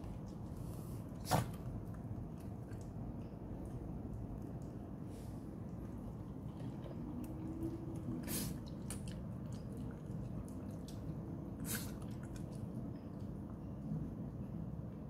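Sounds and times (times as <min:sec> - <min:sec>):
dog chewing and lip-smacking: 0:05.7 - 0:13.6.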